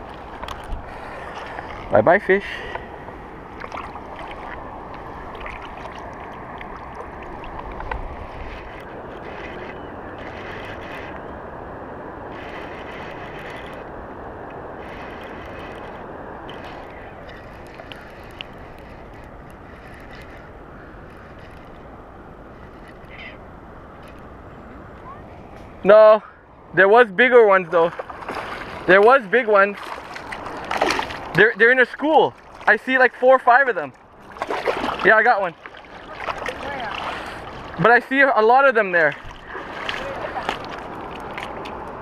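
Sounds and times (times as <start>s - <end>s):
wind buffeting microphone: 0.0s - 25.8s.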